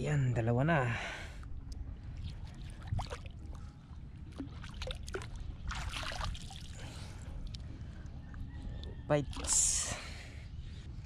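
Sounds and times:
fish splashing into water: 4.4s - 6.7s.

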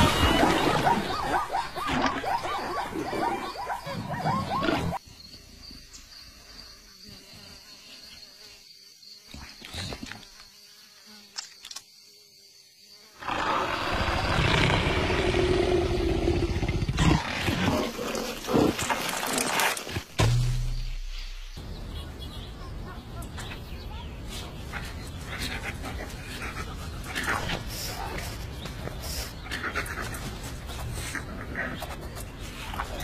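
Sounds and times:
cartoon leopard growling: 0.0s - 5.0s, 13.2s - 19.4s
insect buzz: 3.4s - 22.6s.

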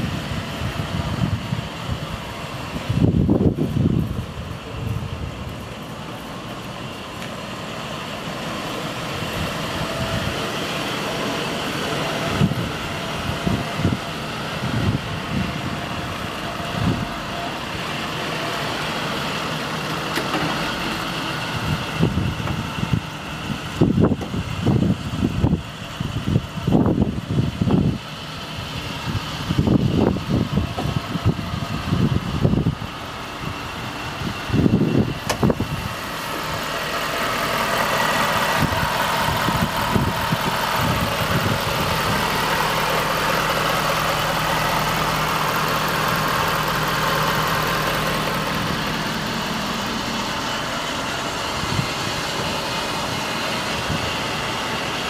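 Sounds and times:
diesel engine idling: 0.0s - 55.0s.

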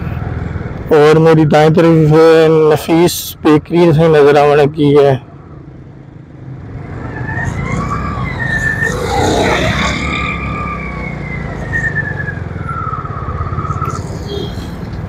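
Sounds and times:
car and motorcycle engines rumbling: 0.0s - 15.0s
vehicle passing close: 6.7s - 12.3s.

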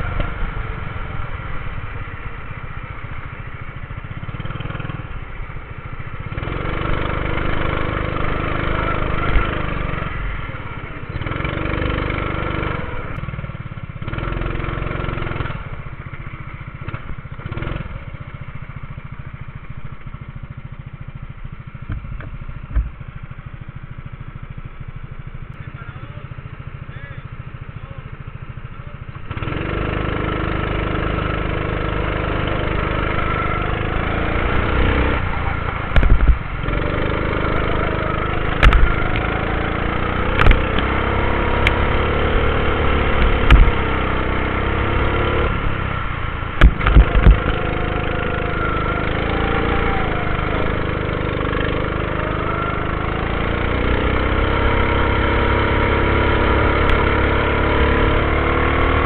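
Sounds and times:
go-kart engine running hard: 0.0s - 59.0s
kart knocking over kerbs: 34.9s - 44.4s, 46.6s - 52.4s.

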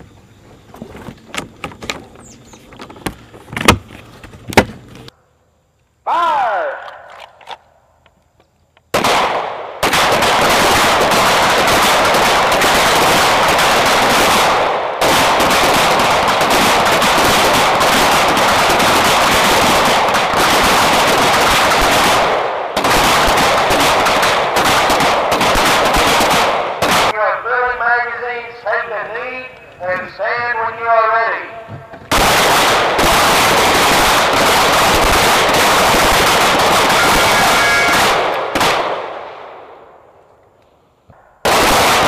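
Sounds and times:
pistols firing: 8.9s - 27.2s, 32.1s - 39.9s, 41.4s - 42.0s.

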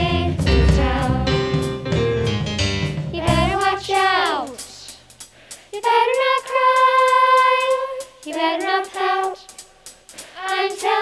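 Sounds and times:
person singing: 0.0s - 1.5s
instrumental accompaniment with bass: 0.0s - 4.0s.

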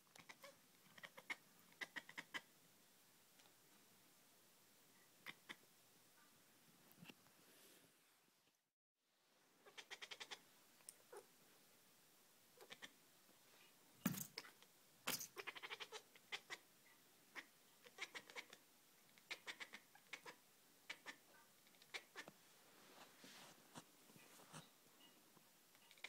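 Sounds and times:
cat calling: 0.2s - 2.5s, 9.6s - 10.4s, 12.6s - 13.0s, 15.3s - 16.6s, 17.4s - 18.6s, 19.2s - 22.3s.

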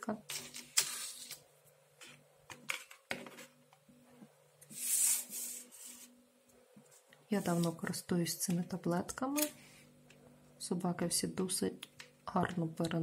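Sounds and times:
rubbing swish on tabletop: 4.7s - 6.2s.

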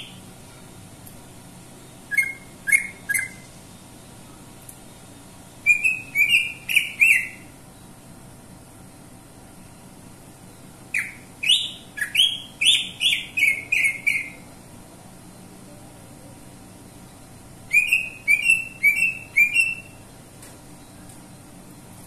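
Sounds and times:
bird singing sharp whistled notes: 2.1s - 3.4s, 17.7s - 20.0s.

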